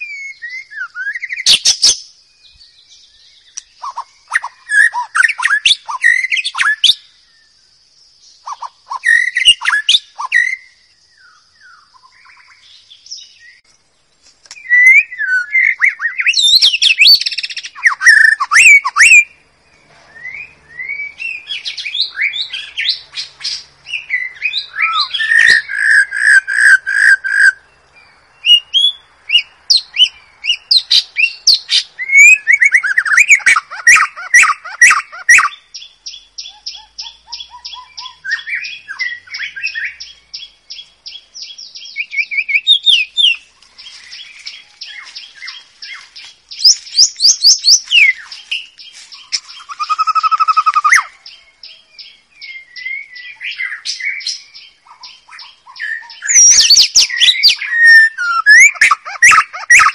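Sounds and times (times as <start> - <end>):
bird singing whistled phrases: 0.0 - 7.1, 8.4 - 13.6, 14.5 - 19.4, 20.0 - 27.6, 28.4 - 59.9
bird sharp clicks: 3.5 - 4.5, 14.2 - 14.9.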